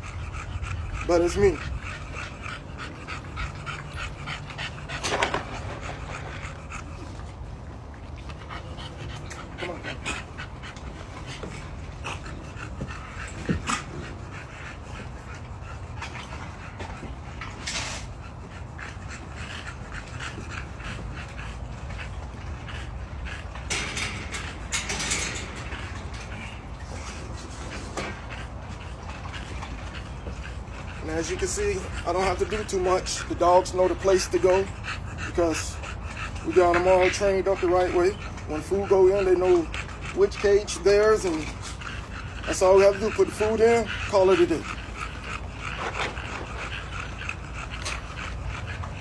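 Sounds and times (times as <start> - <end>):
dog panting: 0.0 - 49.0
wire kennel metallic rattle: 23.4 - 28.2.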